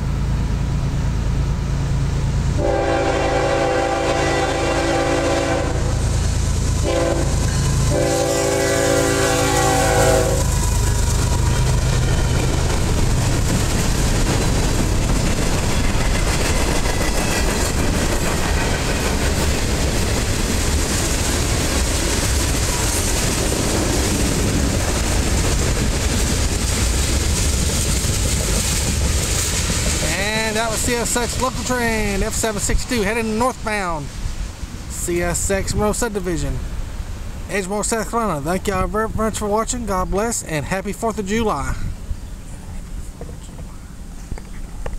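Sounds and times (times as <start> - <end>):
train wheels rumbling on rails: 0.0 - 44.9
train horn: 2.6 - 6.0, 6.8 - 10.6.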